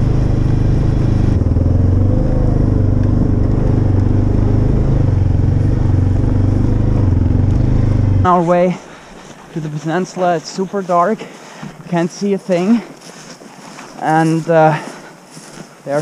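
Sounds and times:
vehicle engine running steadily: 0.0s - 9.1s.

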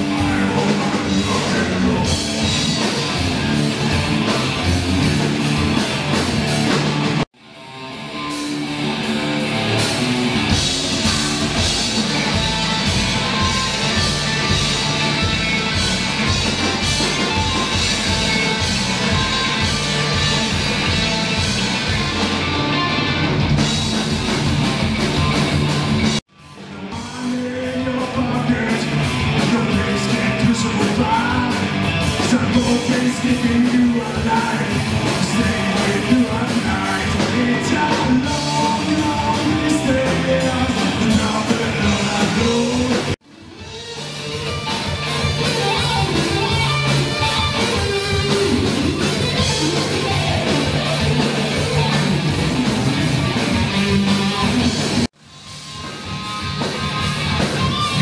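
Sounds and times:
man singing: 0.0s - 2.8s, 26.7s - 43.2s
bass guitar: 0.0s - 58.0s
drums: 0.0s - 58.0s
electric guitar: 0.0s - 58.0s.

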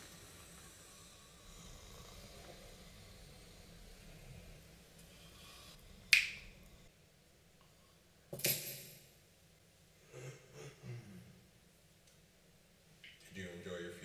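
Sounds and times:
soft low sounds: 0.0s - 8.2s.

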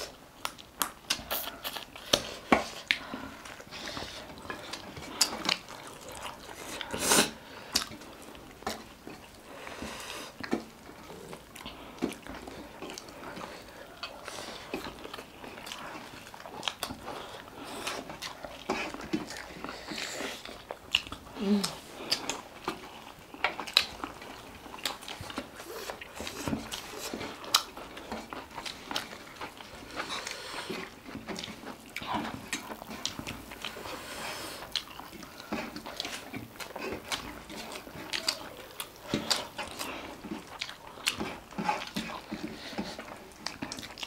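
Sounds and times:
wet chewing and lip smacks: 0.0s - 44.0s.

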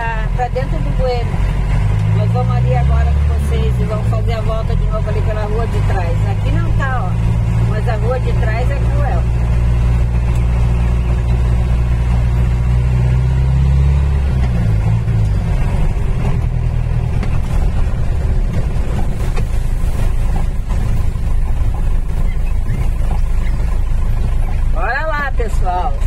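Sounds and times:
car engine and road noise: 0.0s - 26.0s.

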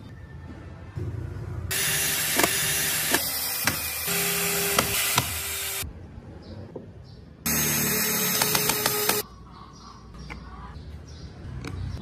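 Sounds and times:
cordless drill whining: 1.7s - 5.8s, 7.5s - 9.2s.

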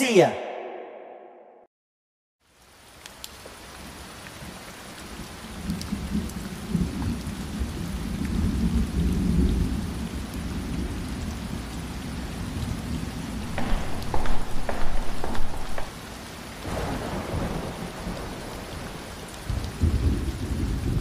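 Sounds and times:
steady rain: 2.4s - 21.0s
thunder rumbling: 13.4s - 21.0s.

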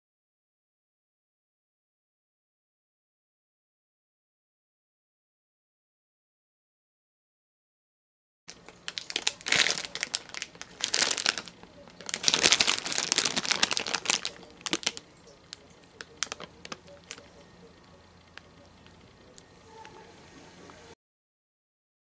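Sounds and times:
plastic pack crinkling: 8.5s - 17.4s
light crackles and clicks: 8.5s - 20.0s.

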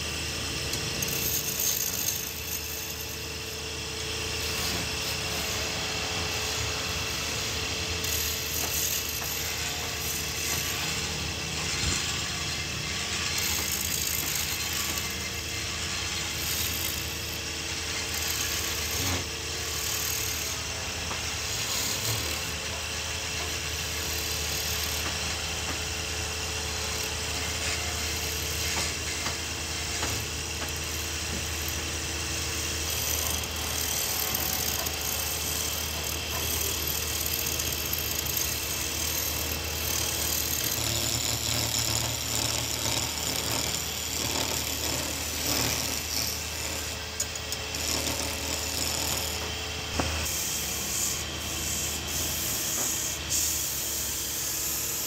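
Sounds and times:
wood lathe motor hum: 0.0s - 55.0s
gouge scraping spinning wood: 33.0s - 55.0s.

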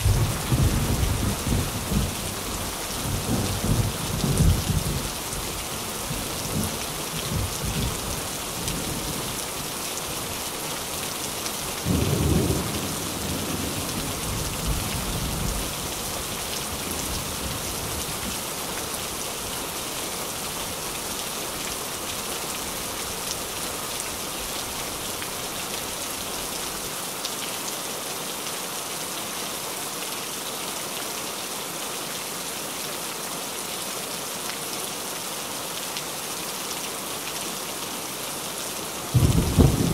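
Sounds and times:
thunder rumbling: 0.0s - 2.4s, 39.1s - 39.9s
heavy rain on a tin roof: 0.0s - 39.9s.

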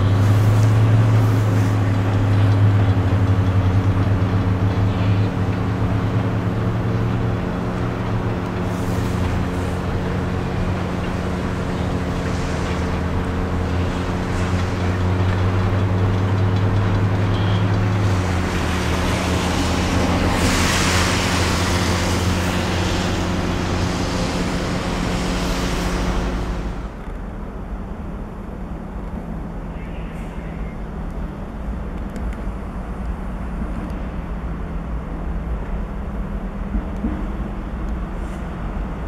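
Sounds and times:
diesel engine humming: 0.0s - 27.0s
rushing noise: 0.0s - 27.1s.

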